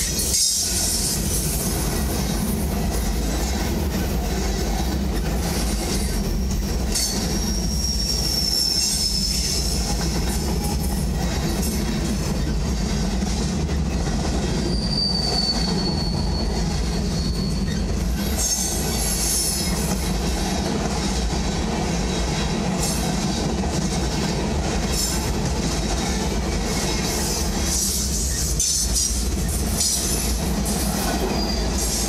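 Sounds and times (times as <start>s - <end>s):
train wheels rumbling on rail: 0.0s - 32.0s
high wheel squeal: 6.9s - 12.9s, 13.7s - 19.8s, 27.2s - 32.0s.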